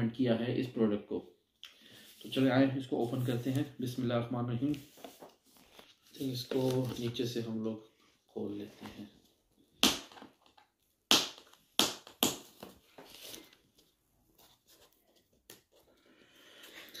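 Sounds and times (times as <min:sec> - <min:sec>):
cardboard rustling: 0:04.6 - 0:07.4.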